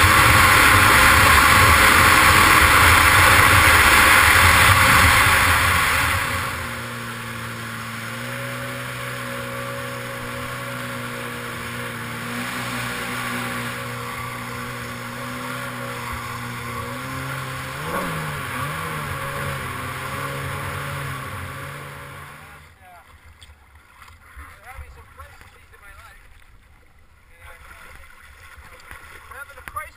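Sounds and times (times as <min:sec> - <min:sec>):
water spray rushing: 0:00.0 - 0:22.6
jet ski engine running: 0:00.0 - 0:26.3.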